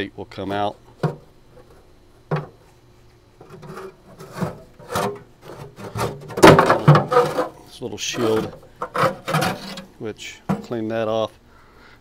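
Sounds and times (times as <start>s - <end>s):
metal plate scraping: 3.4s - 9.9s.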